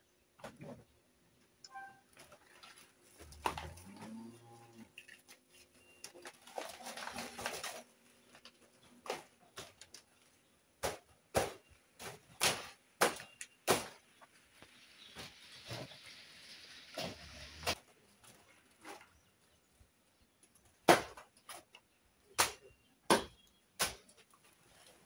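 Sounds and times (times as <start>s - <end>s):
banana plant rustling: 5.2s - 9.8s.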